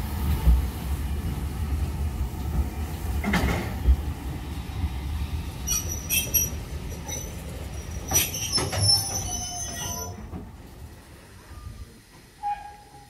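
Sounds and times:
train wheels rumbling: 0:00.0 - 0:13.0
metallic clanks over track: 0:03.2 - 0:03.9, 0:07.0 - 0:10.5
high wheel squeal: 0:05.6 - 0:10.3.

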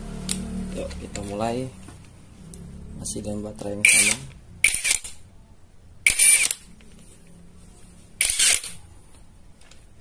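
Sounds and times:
impact wrench bursts: 0:03.8 - 0:05.2, 0:06.0 - 0:06.6, 0:08.2 - 0:08.8.

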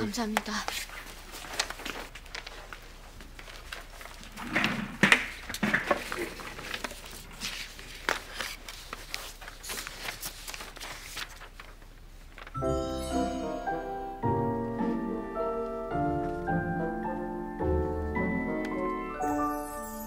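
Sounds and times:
paper rustling: 0:00.2 - 0:12.6.

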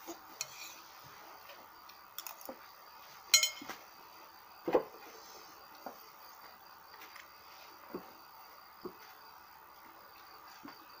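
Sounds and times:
metal bowls and utensils clinking: 0:03.4 - 0:03.7.

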